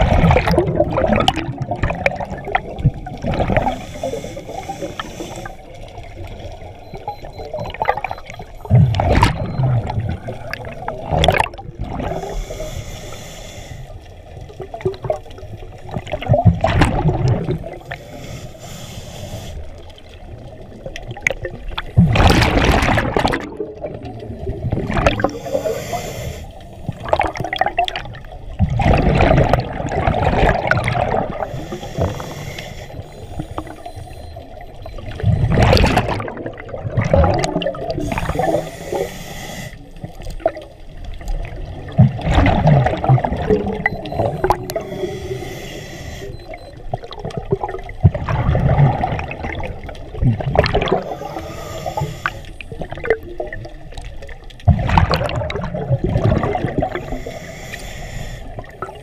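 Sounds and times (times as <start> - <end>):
underwater bubbles gurgling: 0.0 - 59.0
diver breathing through regulator: 3.4 - 5.8, 12.0 - 14.1, 17.8 - 19.8, 25.1 - 27.0, 31.0 - 35.0, 37.4 - 40.0, 43.5 - 46.8, 50.8 - 52.8, 56.6 - 59.0.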